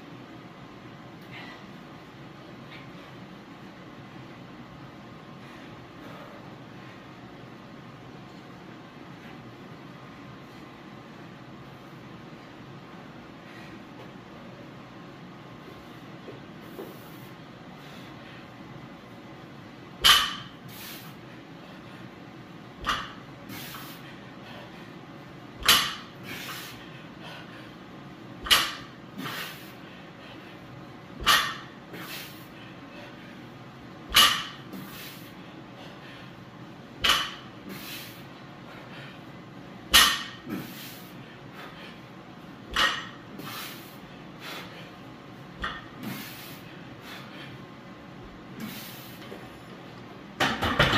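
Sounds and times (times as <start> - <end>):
short hissing breaths: 16.6 - 18.2, 20.2 - 21.3, 23.4 - 24.8, 25.6 - 27.8, 28.5 - 30.6, 31.3 - 33.3, 34.2 - 36.4, 37.1 - 39.3, 40.2 - 42.0, 43.3 - 45.0, 46.0 - 47.6, 48.6 - 49.3
short breathy hiss: 20.6 - 21.2, 23.5 - 24.1, 37.6 - 38.3, 43.4 - 44.8
barbell clanking in rack: 34.1 - 34.6.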